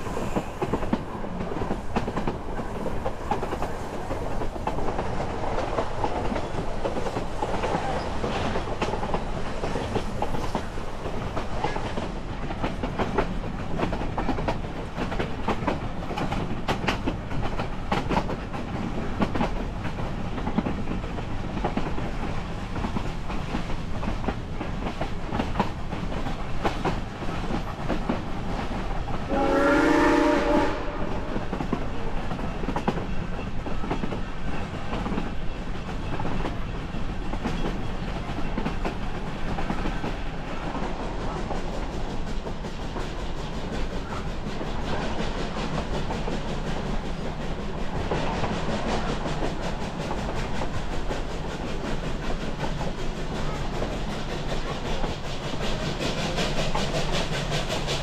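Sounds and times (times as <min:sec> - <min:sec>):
train coach rumbling: 0:00.0 - 0:58.0
steam whistle blowing: 0:29.3 - 0:31.1.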